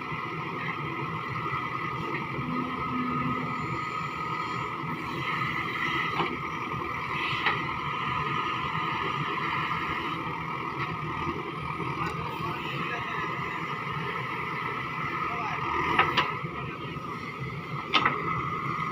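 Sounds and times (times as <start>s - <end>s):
diesel engine running: 0.0s - 18.9s
high whine: 1.4s - 8.7s.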